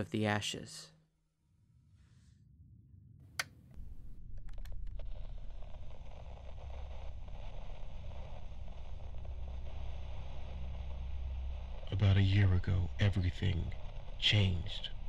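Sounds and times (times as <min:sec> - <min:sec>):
low rumble: 0:01.6 - 0:15.0
steady rushing hiss: 0:05.0 - 0:15.0.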